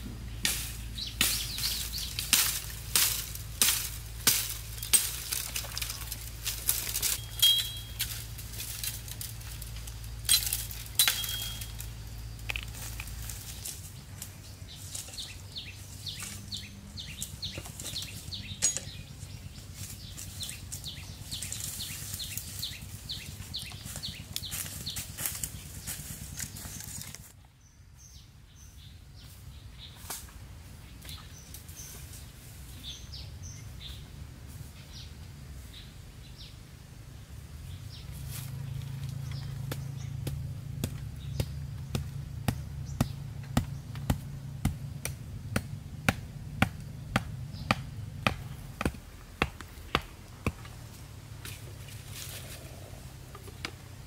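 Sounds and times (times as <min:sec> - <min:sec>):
blade chopping bamboo: 0:00.4 - 0:09.6, 0:39.6 - 0:50.8.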